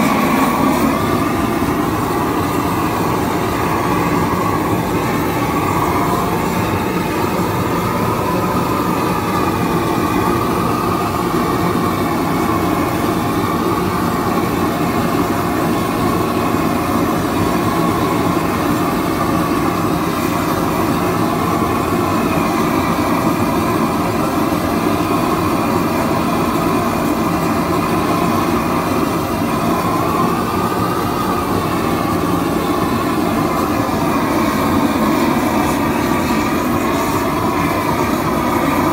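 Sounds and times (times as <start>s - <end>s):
roofing torch flame rushing: 0.0s - 38.9s.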